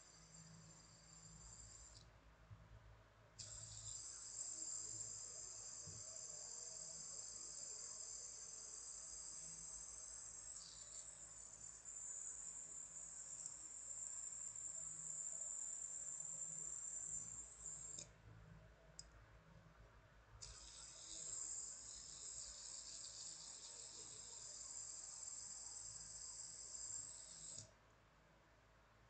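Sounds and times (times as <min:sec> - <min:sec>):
fidget spinner bearing whirring: 0:03.4 - 0:18.1, 0:20.4 - 0:27.8.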